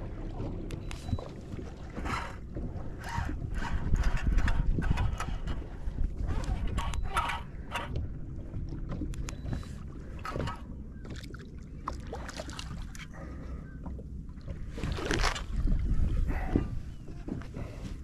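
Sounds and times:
wind and water around boat: 0:00.0 - 0:18.0.

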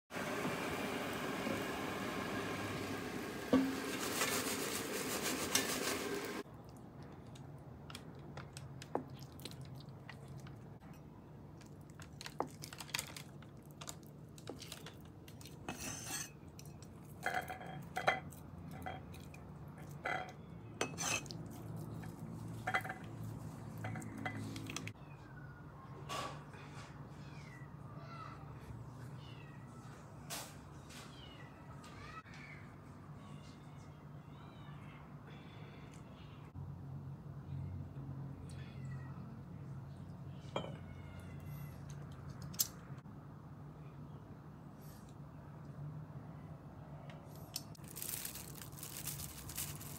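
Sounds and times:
air fryer whirring: 0:00.1 - 0:06.4.

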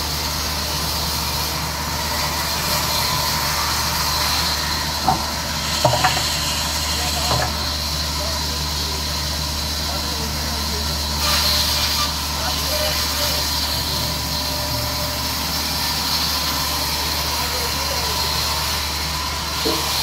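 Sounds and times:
band saw cutting log: 0:00.0 - 0:20.0
short knocks: 0:05.0 - 0:06.4, 0:07.2 - 0:07.7.

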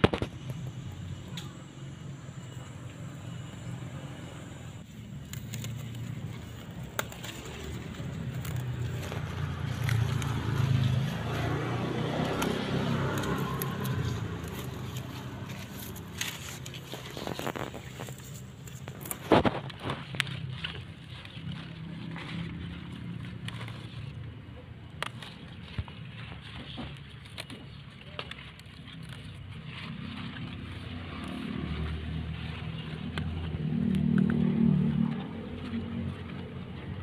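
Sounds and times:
leaves snapping and rustling: 0:00.0 - 0:02.2, 0:04.8 - 0:37.0
motor vehicle passing: 0:00.0 - 0:27.6, 0:28.3 - 0:37.0.

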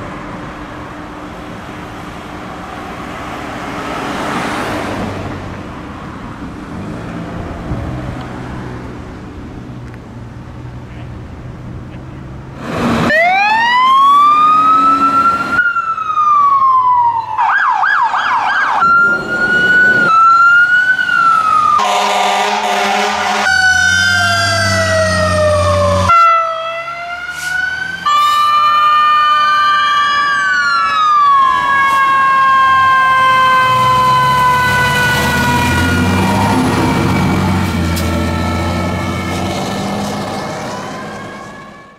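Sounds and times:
truck engines: 0:00.0 - 0:41.9
electronic sirens: 0:13.0 - 0:41.9
air horn blast: 0:21.8 - 0:23.8, 0:26.1 - 0:26.5.

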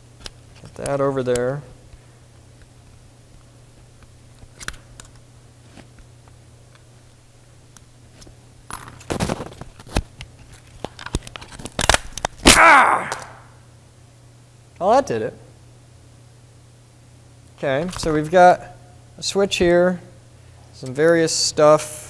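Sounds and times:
loud crunch: 0:11.6 - 0:13.4.

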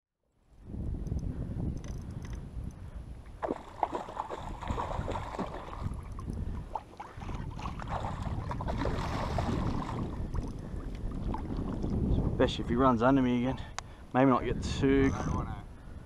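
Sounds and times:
wind rumbling on microphone: 0:00.3 - 0:16.0
water splashing and sloshing: 0:03.2 - 0:12.1.

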